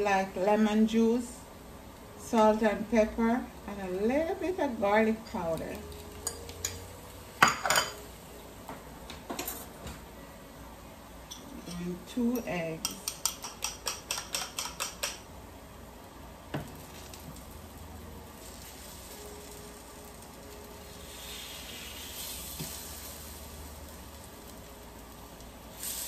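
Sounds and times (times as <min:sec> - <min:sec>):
plantain sizzling in a frying pan: 0:12.1 - 0:26.0
fork tapping a pan: 0:12.8 - 0:15.2
spoon clicking against a bowl: 0:12.8 - 0:15.2.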